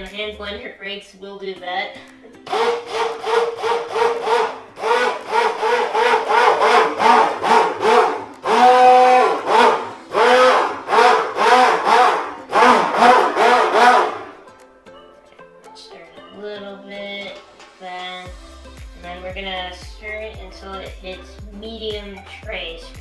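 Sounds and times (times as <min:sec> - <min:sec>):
stick blender motor pulsing: 0:02.4 - 0:14.4.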